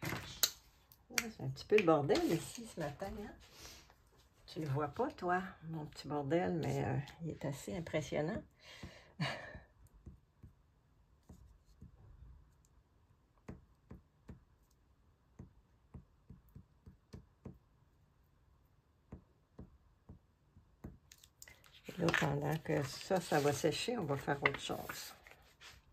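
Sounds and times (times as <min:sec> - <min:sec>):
glue stick taps and clicks on paper: 0:09.9 - 0:10.6, 0:13.4 - 0:17.7, 0:19.0 - 0:21.5.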